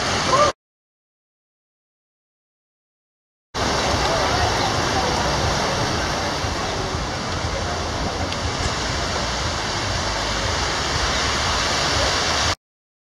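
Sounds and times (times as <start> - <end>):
water rushing and splashing: 0.0 - 0.6, 3.6 - 12.6.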